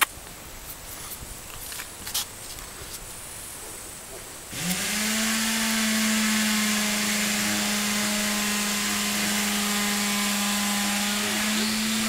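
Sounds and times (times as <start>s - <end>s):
small motor running: 4.5s - 12.0s.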